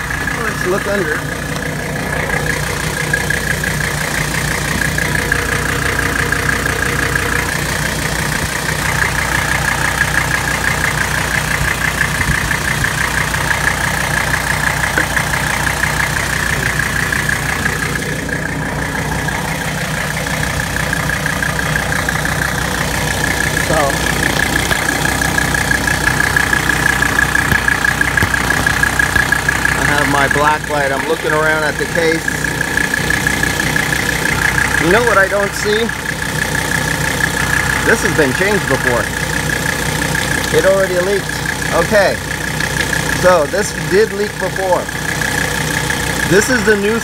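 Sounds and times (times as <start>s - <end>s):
diesel engine idling: 0.0s - 47.0s.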